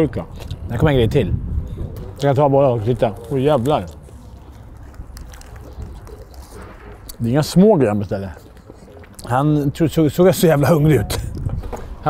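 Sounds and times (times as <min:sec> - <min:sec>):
wind rumbling on microphone: 0:00.0 - 0:07.1, 0:10.6 - 0:12.0
paper wrapping crinkling: 0:02.9 - 0:07.0.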